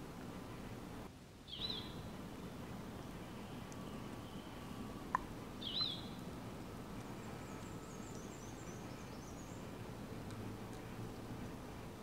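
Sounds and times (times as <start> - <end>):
steady low hum: 0.0 - 12.0
small bird chirping: 1.5 - 2.1, 5.6 - 6.2, 7.2 - 9.8
faint clicks: 3.0 - 3.9, 5.1 - 6.2, 6.9 - 8.4, 10.2 - 11.2.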